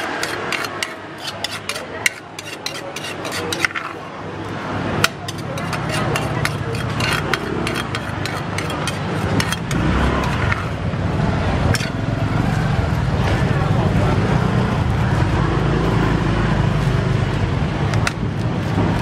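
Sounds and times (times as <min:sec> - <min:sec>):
spoon scraping shredded papaya: 0:00.0 - 0:10.7
voices: 0:00.2 - 0:10.6, 0:12.0 - 0:16.7
vehicle engine hum: 0:06.0 - 0:19.0.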